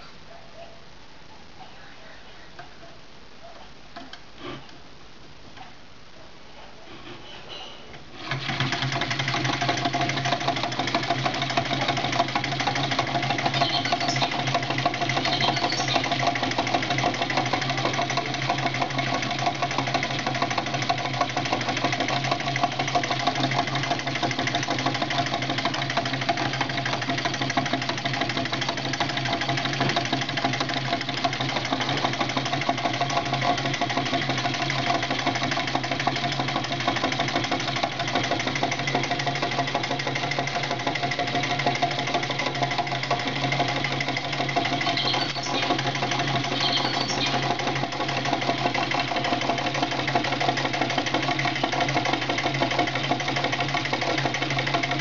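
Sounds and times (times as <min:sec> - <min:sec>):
engine mechanical clatter: 0:07.2 - 0:55.0.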